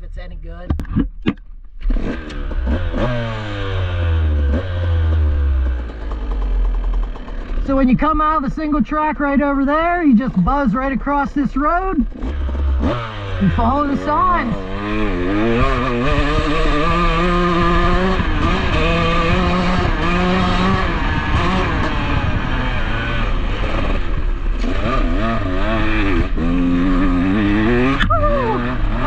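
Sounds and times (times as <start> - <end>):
dirt bike engine revving: 1.8 - 29.0.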